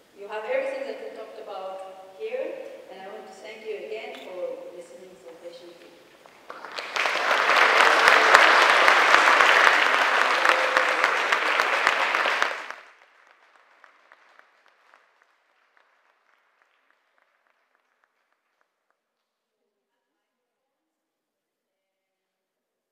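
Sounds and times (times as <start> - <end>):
audience applauding: 6.3 - 18.8.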